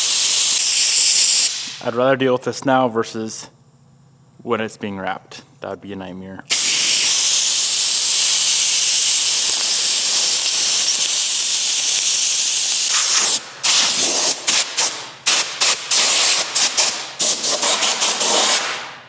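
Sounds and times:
air blow gun hissing: 0.0 - 1.8, 6.5 - 18.8.

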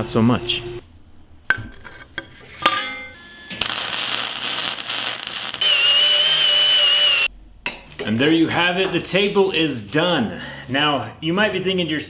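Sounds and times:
welder crackling: 3.5 - 7.3
power drill whining: 5.2 - 7.3.

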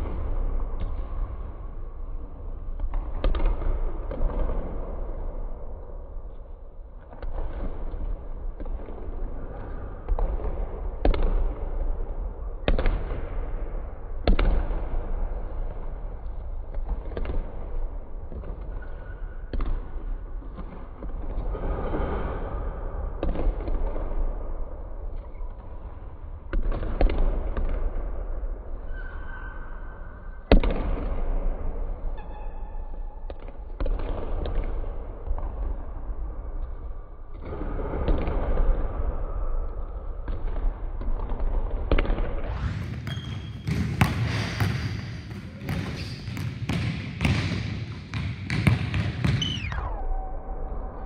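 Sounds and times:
basketballs bouncing on gym floor: 2.7 - 5.0, 7.2 - 18.9, 19.5 - 21.4, 26.5 - 28.3, 30.5 - 31.5, 33.3 - 36.7, 40.2 - 49.8
basketballs bouncing on hardwood floor: 9.6 - 11.7, 40.3 - 49.8
sneaker squeaks: 28.9 - 29.9, 32.2 - 32.9, 42.6 - 49.8
ball hitting rim and backboard: 41.4 - 49.9.

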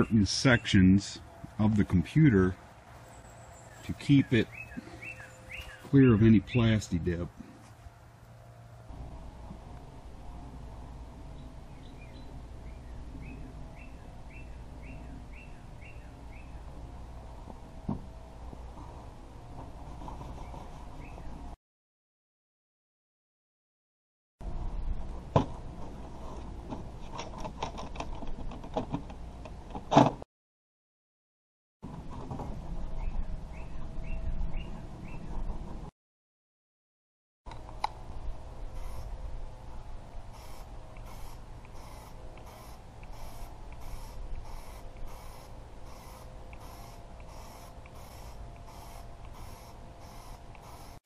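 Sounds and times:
low rumble: 1.2 - 20.0
aerosol spray hissing in bursts: 40.3 - 51.0.

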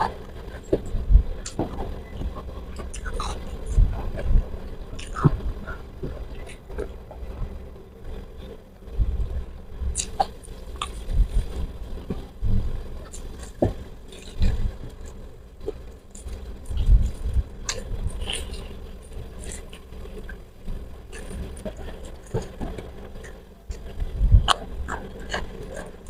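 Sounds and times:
person chewing crispy food: 9.9 - 12.2, 13.0 - 20.4.

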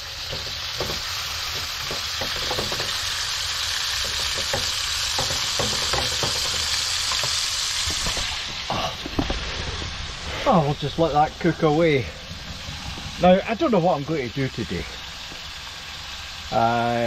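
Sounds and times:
food sizzling in frying pan: 0.0 - 17.0
spatula tapping and scraping pan: 0.3 - 3.1, 4.0 - 8.3.

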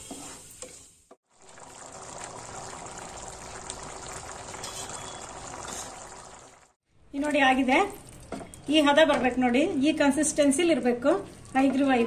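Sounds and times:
syrup bubbling and sizzling: 1.2 - 6.8
wooden spatula stirring: 10.7 - 12.0.

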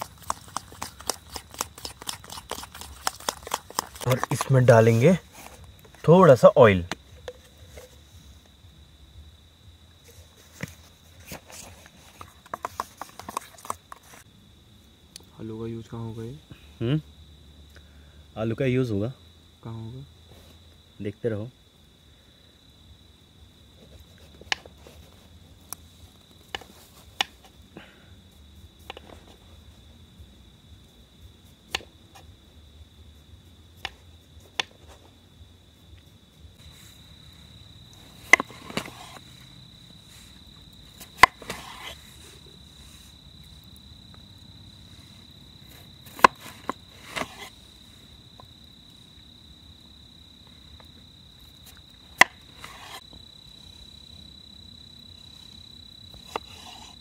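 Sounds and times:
crickets chirring: 0.0 - 57.0
knife cutting on wooden board: 38.3 - 39.2, 41.2 - 42.0, 46.1 - 47.5, 52.2 - 53.0, 56.2 - 57.0.

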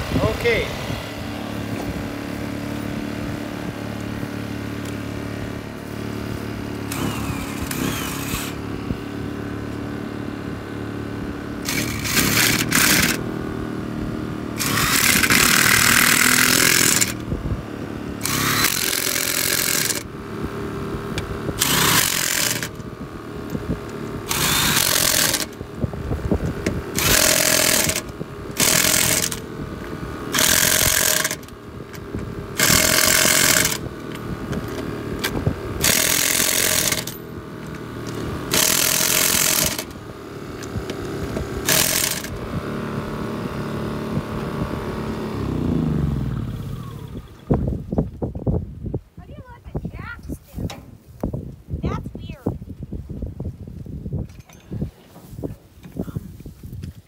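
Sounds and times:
generator humming: 0.0 - 48.0
impact wrench hammering lug nuts: 6.9 - 8.6, 11.6 - 13.2, 14.6 - 17.2, 18.2 - 20.1, 21.1 - 22.8, 24.3 - 25.6, 26.6 - 29.5, 30.3 - 40.0, 40.6 - 42.4.

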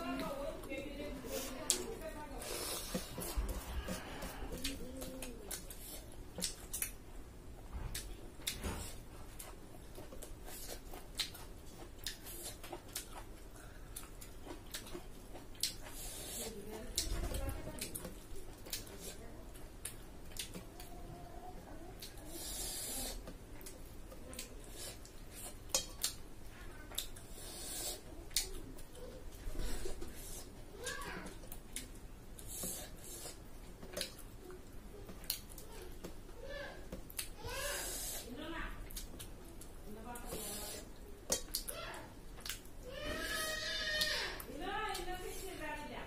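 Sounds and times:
chewing and mouth smacks: 2.8 - 7.0, 7.9 - 17.1, 19.8 - 20.9, 23.2 - 26.2, 31.4 - 36.2, 41.3 - 41.7, 42.3 - 42.8.

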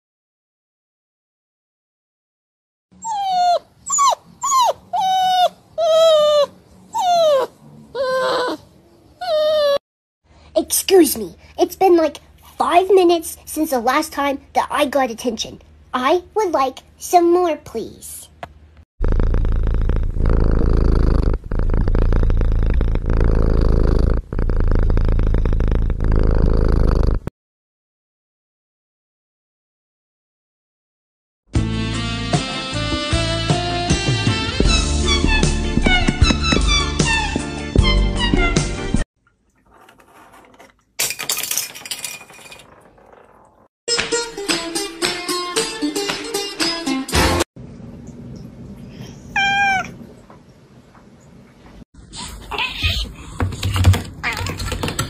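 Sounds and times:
dog whining: 3.0 - 9.8
cat purring: 19.0 - 27.3.

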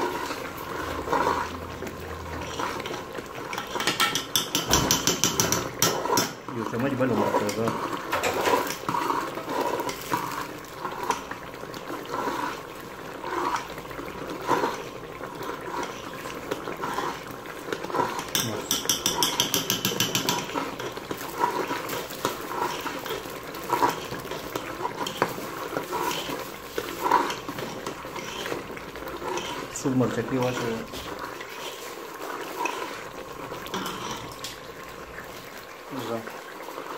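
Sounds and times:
metal spoon scraping pot: 0.0 - 12.5, 14.4 - 33.0, 33.6 - 34.6.

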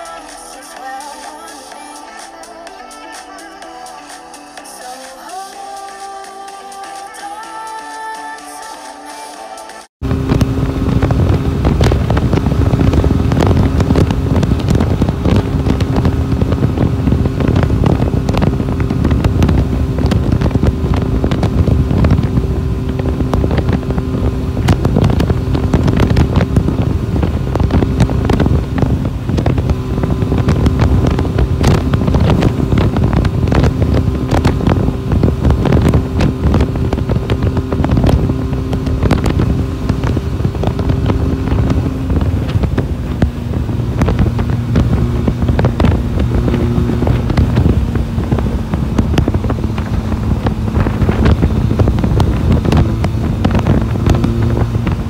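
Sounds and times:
motorcycle engine cruising: 10.0 - 55.0
wind buffeting microphone: 10.0 - 55.0.

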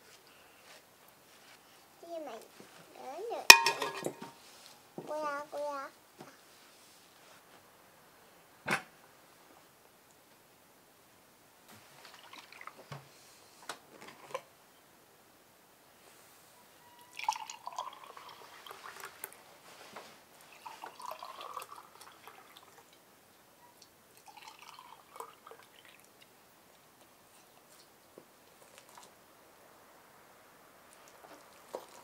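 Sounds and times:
juice gurgling into glass: 17.1 - 19.1, 20.6 - 22.8, 24.2 - 26.0.

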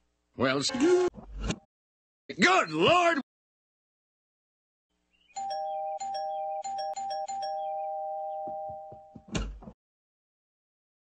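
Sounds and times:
two-tone doorbell chime: 5.4 - 9.2.

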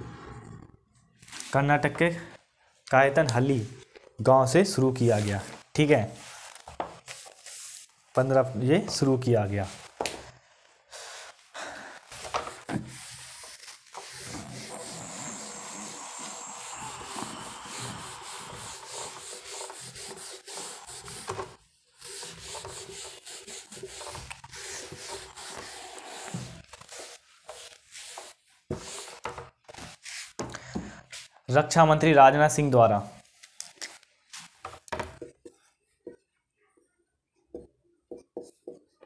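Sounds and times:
rubbing scratching noise: 12.1 - 30.4.

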